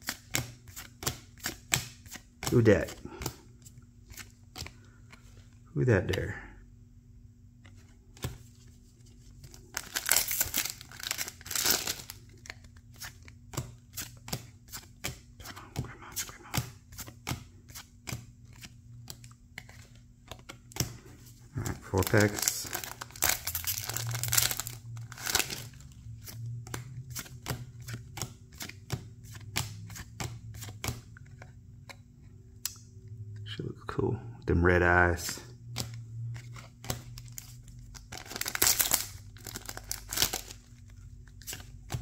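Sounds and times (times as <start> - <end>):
steady low hum: 0.0 - 42.0
plastic wrapper crinkling and tearing: 9.5 - 12.7, 21.6 - 25.9, 37.0 - 41.0
cards flicking with light snaps: 26.2 - 32.0.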